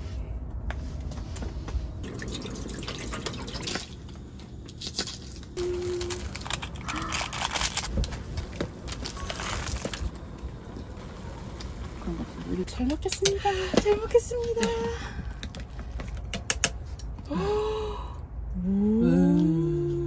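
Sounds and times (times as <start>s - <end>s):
broth bubbling at the boil: 2.0s - 4.0s.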